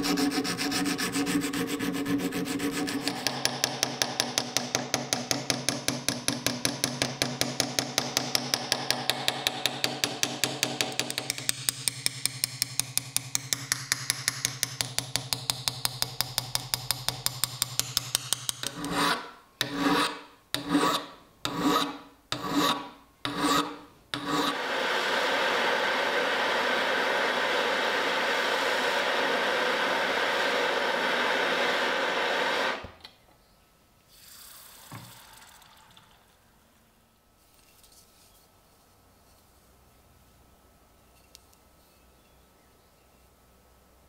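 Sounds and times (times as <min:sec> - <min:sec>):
file strokes on steel: 0:00.0 - 0:03.3, 0:18.6 - 0:24.7.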